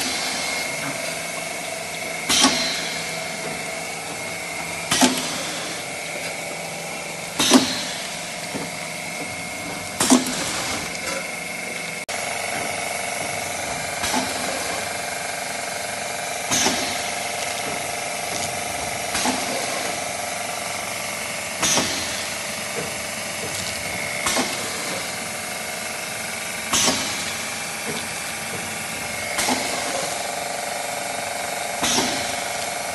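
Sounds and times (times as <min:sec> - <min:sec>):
machine mechanical hum: 0:00.0 - 0:32.9
sealing jaws clacking with hiss: 0:02.3 - 0:03.1, 0:07.4 - 0:08.1, 0:14.0 - 0:14.9, 0:16.5 - 0:17.9, 0:19.0 - 0:20.0, 0:21.6 - 0:23.6, 0:24.2 - 0:25.2, 0:26.7 - 0:30.2, 0:31.7 - 0:32.8.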